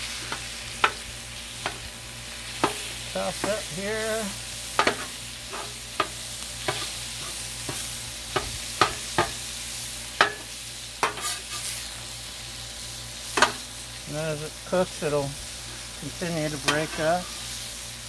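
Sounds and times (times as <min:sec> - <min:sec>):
meat sizzling on a griddle: 0:00.0 - 0:18.0
metal spatula clacking on steel: 0:10.2 - 0:11.5.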